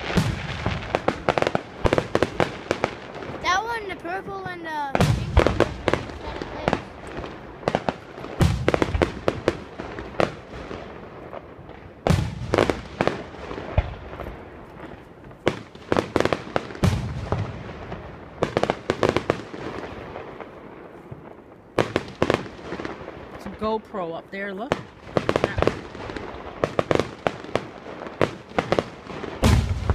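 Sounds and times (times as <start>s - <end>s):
fireworks booming: 0.0s - 29.9s
fireworks crackling pops: 0.0s - 29.9s.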